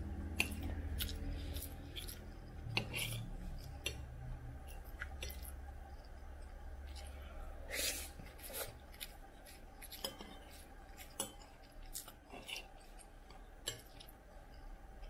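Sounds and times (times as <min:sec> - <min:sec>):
spoon scraping a porcelain plate: 0:02.7 - 0:04.0.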